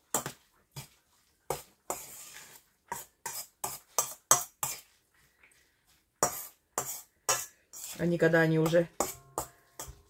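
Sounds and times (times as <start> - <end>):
utensil scraping metal bowl: 1.5 - 4.9, 6.2 - 10.0.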